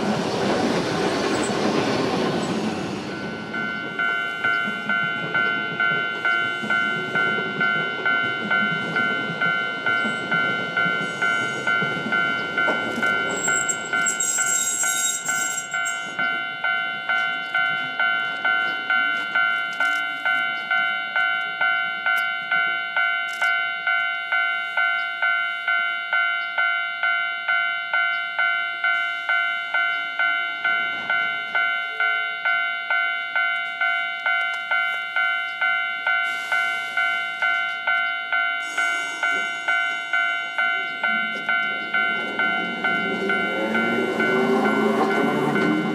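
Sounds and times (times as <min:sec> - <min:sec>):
level-crossing warning bell: 0:00.0 - 0:45.9
tram rumbling on rails: 0:00.0 - 0:45.9
high brake squeal: 0:13.3 - 0:16.0, 0:38.6 - 0:39.6.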